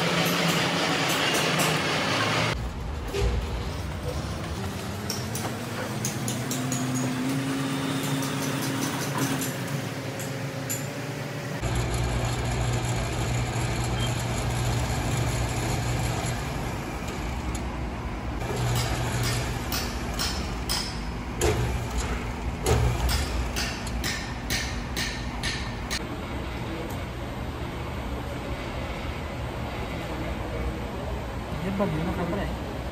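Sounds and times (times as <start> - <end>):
coil winding machine motor hum: 6.2 - 24.0.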